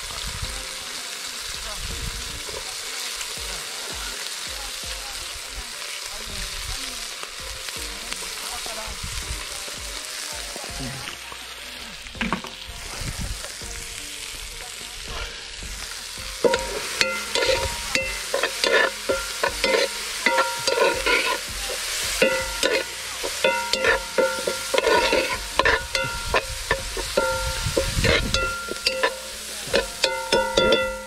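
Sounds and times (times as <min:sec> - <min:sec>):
vegetables sizzling in a pot: 0:00.0 - 0:31.0
utensil clinking and scraping pot: 0:15.1 - 0:31.0.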